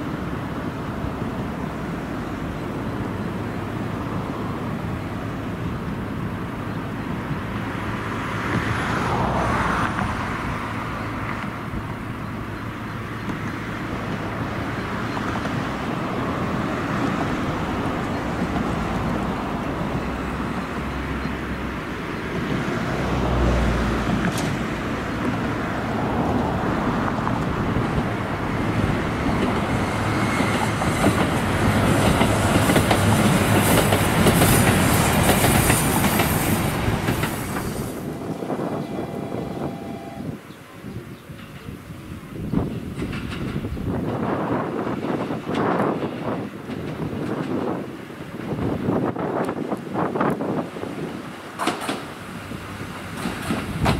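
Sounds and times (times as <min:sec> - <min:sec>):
diesel railcar engine: 0:00.0 - 0:53.9
high hiss from train wheels: 0:28.6 - 0:40.3.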